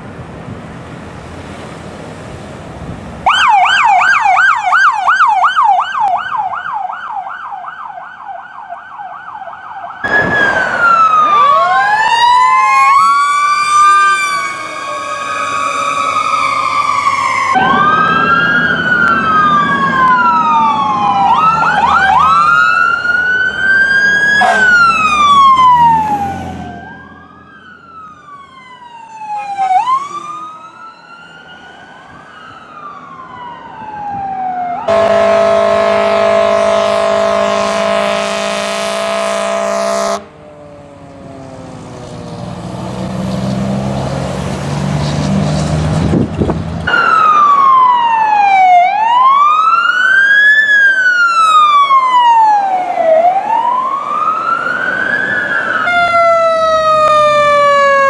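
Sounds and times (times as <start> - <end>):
vehicle noise: 0.0 - 58.0
electronic siren wailing: 3.3 - 40.4, 46.9 - 58.0
loud multi-tone horn blast: 13.5 - 17.8, 24.4 - 25.1, 34.9 - 40.3.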